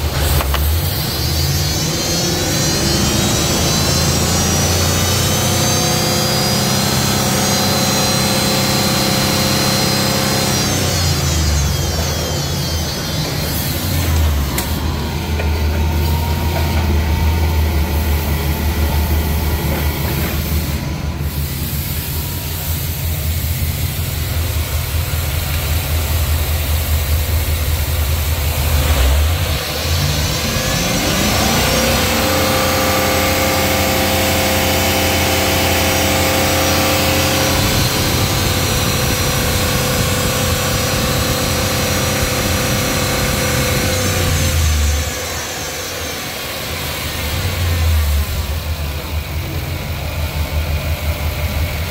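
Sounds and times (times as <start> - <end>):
truck engine idling: 10.6 - 32.2, 33.9 - 51.9.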